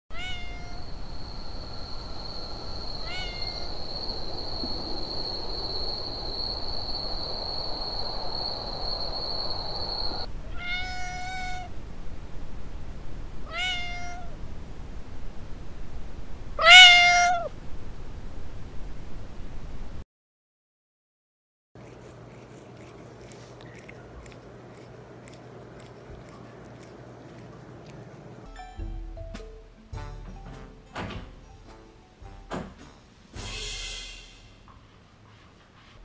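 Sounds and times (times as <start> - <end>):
cats meowing: 0.1 - 0.9, 3.0 - 3.7, 10.4 - 11.7, 13.5 - 14.4, 16.6 - 17.5, 21.8 - 28.4.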